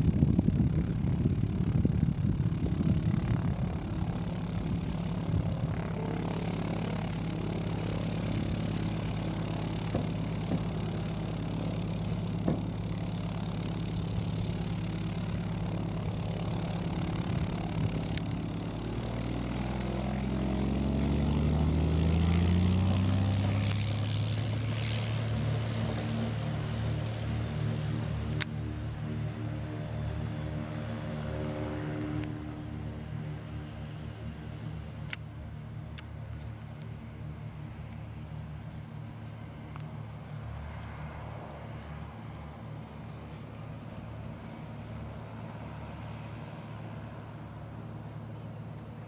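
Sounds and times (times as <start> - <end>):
propeller plane engine running: 0.0 - 49.0.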